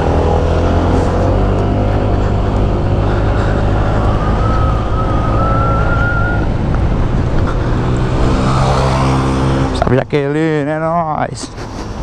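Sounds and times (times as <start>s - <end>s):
scooter engine running: 0.0s - 9.8s
wind and road noise: 0.0s - 12.0s.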